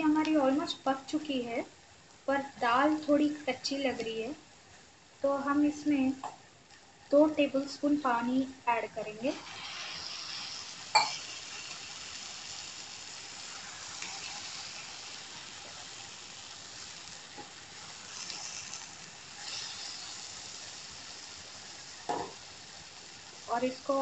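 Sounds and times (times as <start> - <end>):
vegetables sizzling in a pan: 0.0 - 24.0
spatula stirring: 13.4 - 21.2.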